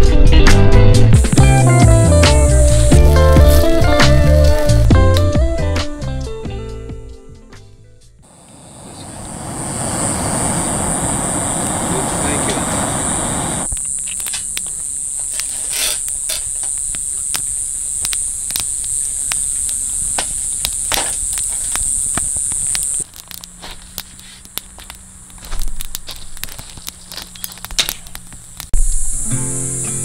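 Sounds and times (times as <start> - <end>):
insects chirping: 1.2 - 5.4, 8.2 - 30.0
kindling crackling and popping: 9.4 - 28.8.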